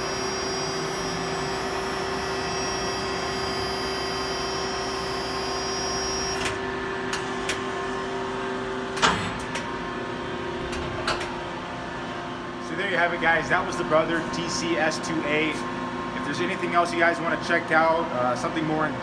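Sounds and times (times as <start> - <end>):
drilling machine whine: 0.0 - 7.8.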